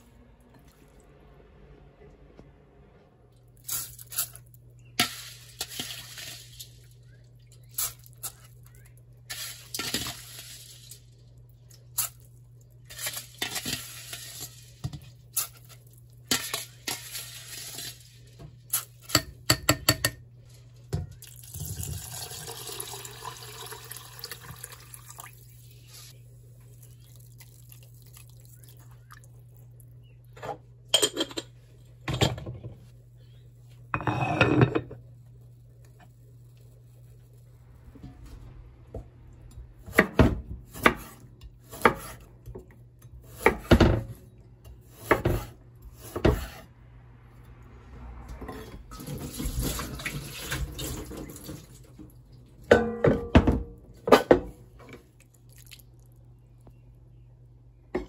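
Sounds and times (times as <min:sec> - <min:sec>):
low hum: 0:00.0 - 0:18.7, 0:34.8 - 0:40.7
dishes clicking and knocking: 0:19.1 - 0:20.2, 0:30.4 - 0:32.8, 0:52.7 - 0:55.0
water pouring over rice: 0:21.2 - 0:26.1
water splashing and sloshing: 0:47.8 - 0:52.7.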